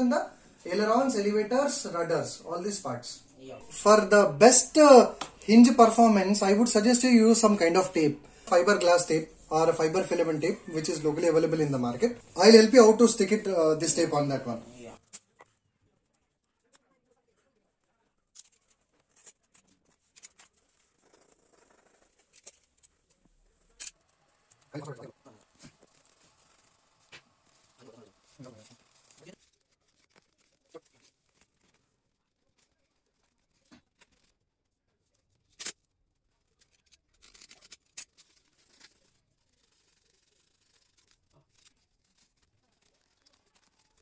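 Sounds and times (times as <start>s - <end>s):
hands rustling tape: 17.8s - 44.0s.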